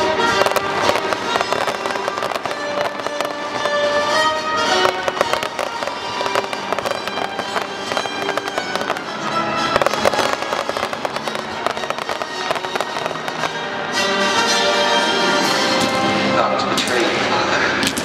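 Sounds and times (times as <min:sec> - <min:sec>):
fireworks popping and crackling: 0:00.0 - 0:14.9, 0:15.5 - 0:18.0
music: 0:00.0 - 0:18.0.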